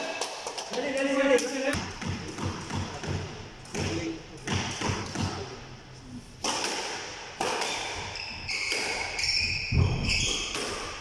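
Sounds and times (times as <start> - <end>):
squash ball cracking off walls: 6.4 - 8.0
shoes squeaking on floor: 7.7 - 10.7.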